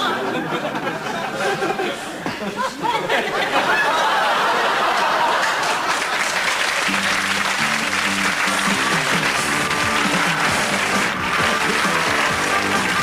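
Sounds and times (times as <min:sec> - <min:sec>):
audience applauding: 0:04.0 - 0:13.0
theme music with bass line: 0:06.8 - 0:13.0.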